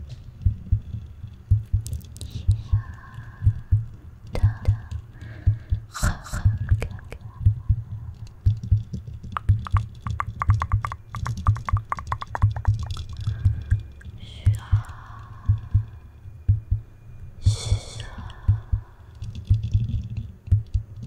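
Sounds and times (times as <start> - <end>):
low repeated thudding: 0.3 - 21.0
whispering: 2.2 - 3.5, 4.3 - 5.1, 5.9 - 8.3, 12.8 - 16.0, 17.4 - 19.2
mouth sounds: 4.3 - 5.0, 5.9 - 7.6, 9.3 - 14.9.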